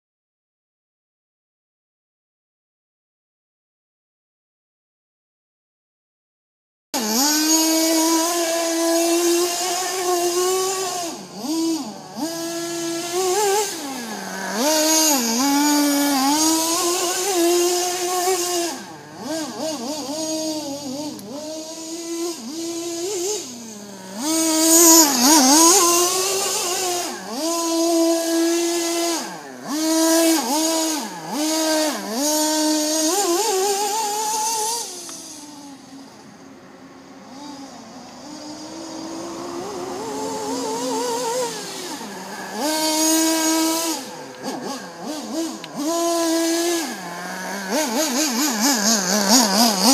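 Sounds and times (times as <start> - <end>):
small engine revving: 7.0 - 49.9.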